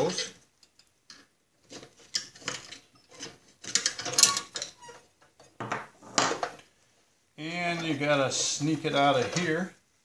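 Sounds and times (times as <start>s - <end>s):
metal clinks and scrapes: 0.0s - 6.5s
tools clattering on workbench: 1.1s - 6.6s.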